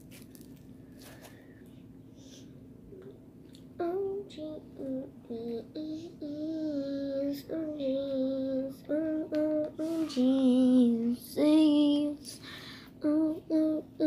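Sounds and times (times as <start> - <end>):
girl breathing: 1.0 - 2.6, 9.7 - 10.4, 12.3 - 13.0
girl singing wordless notes: 3.0 - 14.0.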